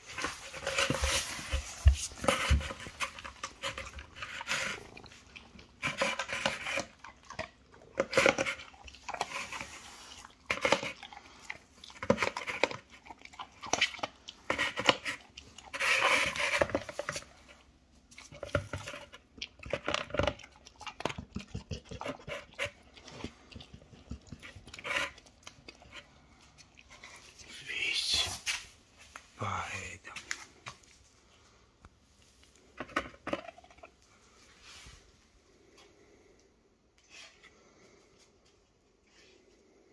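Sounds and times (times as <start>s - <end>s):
dog chewing: 0.0s - 27.4s, 32.6s - 34.3s.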